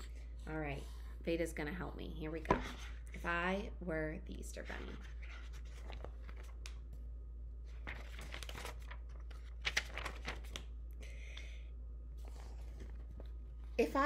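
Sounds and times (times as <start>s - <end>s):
steady low hum: 0.0s - 14.0s
book pages rustling: 4.6s - 7.0s, 7.7s - 10.8s, 12.2s - 13.7s.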